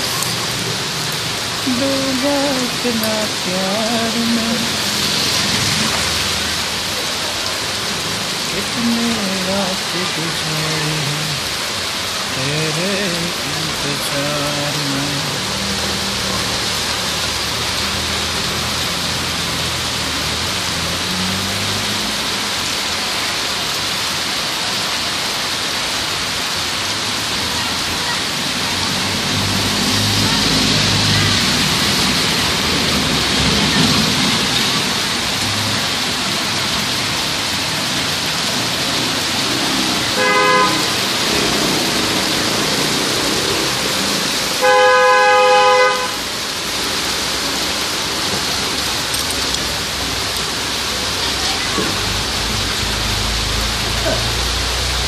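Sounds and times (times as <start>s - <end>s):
car driving through water: 0.0s - 55.0s
heavy rain on a wet street: 0.0s - 55.0s
vehicle horn honking: 40.2s - 41.1s, 44.6s - 46.2s.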